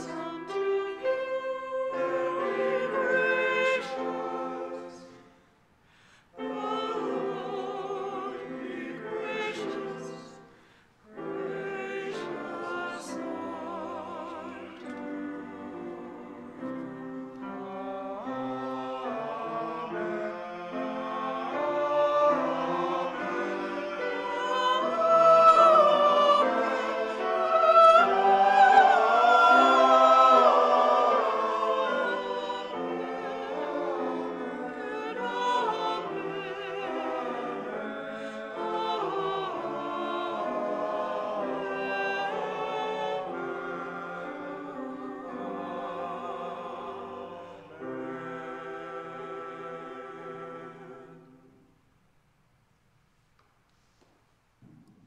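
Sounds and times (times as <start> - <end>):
choir singing: 0.0 - 5.5, 6.3 - 51.7
piano accompaniment: 11.1 - 47.2.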